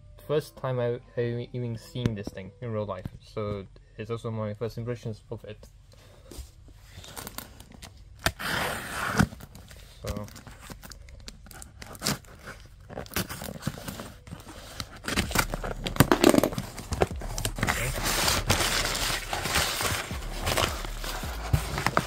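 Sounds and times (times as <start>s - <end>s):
cardboard flaps rustling: 6.4s - 22.0s
packing tape tearing: 7.0s - 22.0s.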